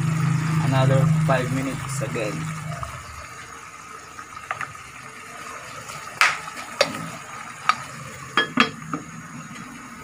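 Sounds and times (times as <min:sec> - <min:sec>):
pot simmering hiss: 0:00.0 - 0:10.0
glass lid clinking on pot: 0:08.4 - 0:08.8
clinks against pot: 0:08.4 - 0:09.0.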